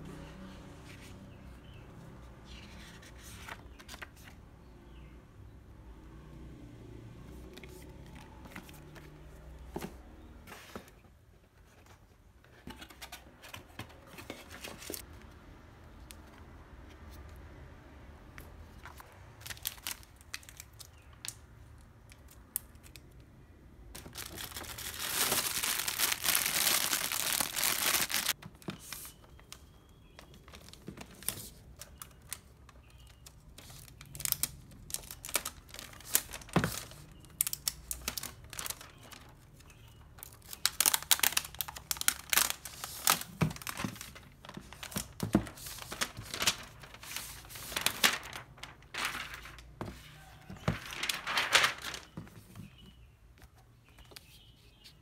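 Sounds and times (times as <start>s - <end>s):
plastic packaging crinkling: 19.4s - 21.3s, 24.0s - 29.1s, 30.5s - 39.3s, 39.9s - 52.2s.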